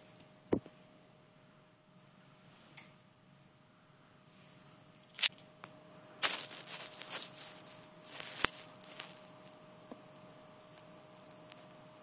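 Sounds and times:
rustling and crackling: 0:06.2 - 0:12.0.

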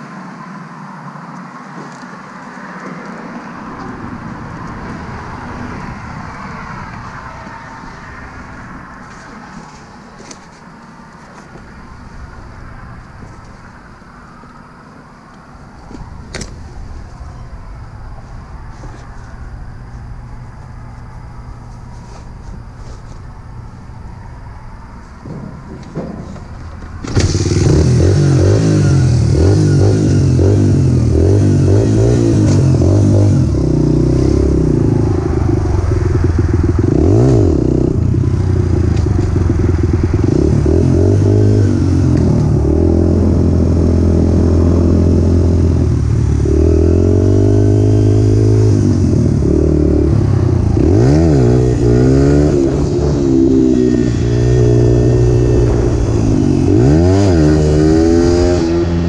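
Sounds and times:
dirt bike engine revving: 0:27.0 - 0:35.0, 0:35.6 - 0:38.2, 0:39.0 - 0:59.0.

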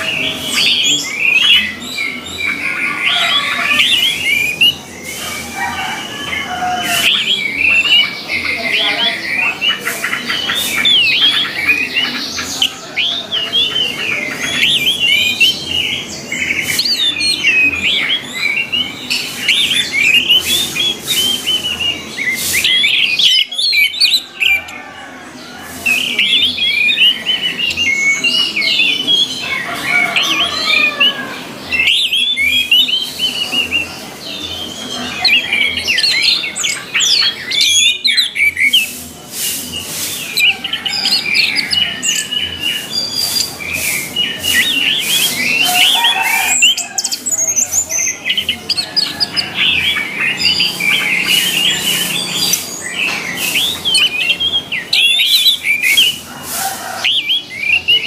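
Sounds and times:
thrush singing: 0:00.0 - 0:58.0.

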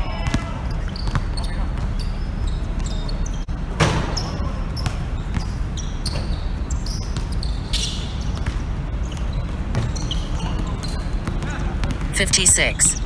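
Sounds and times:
basketball bouncing on hard court: 0:00.1 - 0:03.1, 0:08.2 - 0:12.1.

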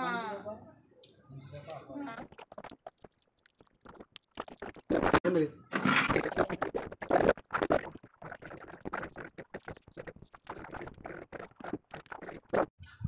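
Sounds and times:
wet chewing and lip-smacking: 0:02.2 - 0:05.0, 0:06.2 - 0:12.7.

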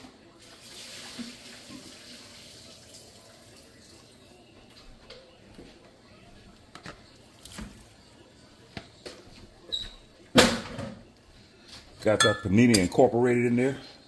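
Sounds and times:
utensils knocking and scraping cookware: 0:12.0 - 0:13.1.

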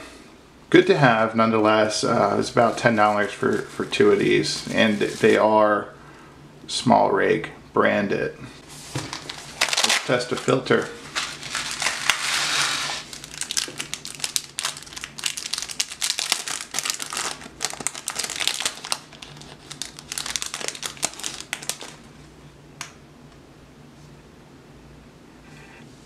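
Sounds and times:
plastic bag crinkling: 0:08.9 - 0:22.1.

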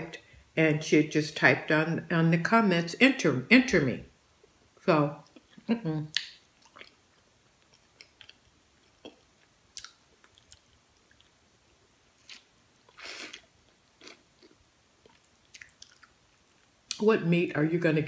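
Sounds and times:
person chewing and sucking meat: 0:06.2 - 0:11.4, 0:12.2 - 0:16.8.

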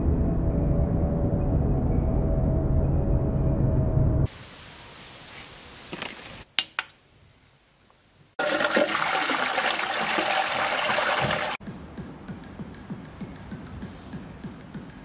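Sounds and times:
toilet flushing: 0:08.4 - 0:11.6.

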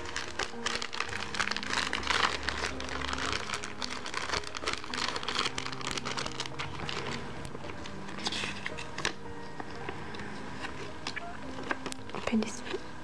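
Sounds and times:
plastic bag crinkling: 0:00.0 - 0:09.0
paper leaflet rustling: 0:00.0 - 0:12.8.

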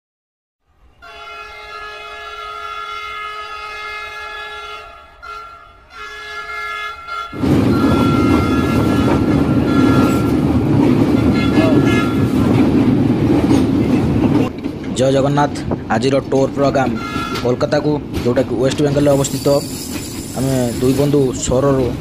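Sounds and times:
train horn blast: 0:00.9 - 0:12.6, 0:16.8 - 0:17.7
train rumbling on track: 0:01.0 - 0:22.0.

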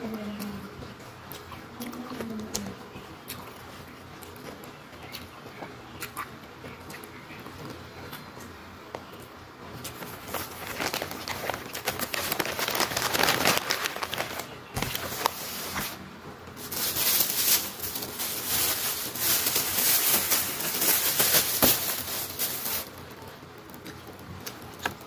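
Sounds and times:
paper wrapping crinkling: 0:09.9 - 0:23.1
plastic bag rustling: 0:09.9 - 0:23.1.

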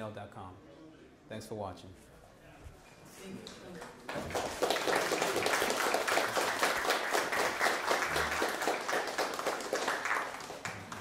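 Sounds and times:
group applauding: 0:03.8 - 0:11.0.

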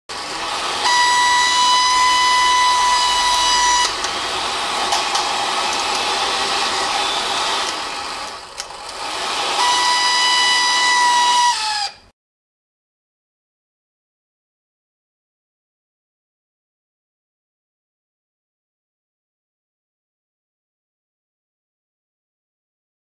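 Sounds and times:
hair dryer running with high whine: 0:00.1 - 0:12.0.

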